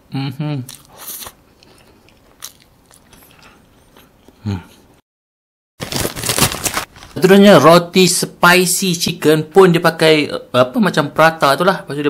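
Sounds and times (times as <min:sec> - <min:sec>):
mouth chewing sounds: 0:00.6 - 0:04.8
plastic packaging crinkling: 0:05.8 - 0:07.2.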